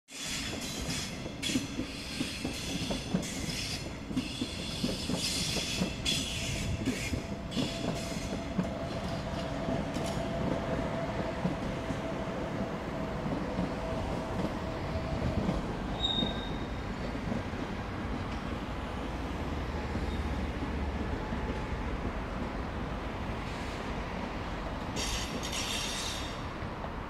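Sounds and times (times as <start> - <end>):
train wheels clattering over rails: 0.2 - 18.8, 24.8 - 26.6
high-pitched wheel squeal: 16.0 - 16.8, 25.0 - 26.4.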